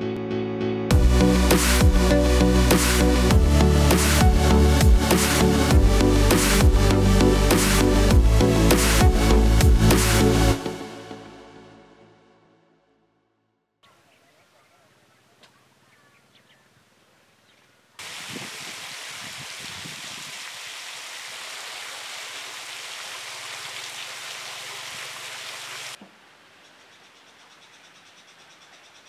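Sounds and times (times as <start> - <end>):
faint bird chirps: 13.8 - 17.8, 26.6 - 29.0
loud steady hiss: 18.0 - 26.0.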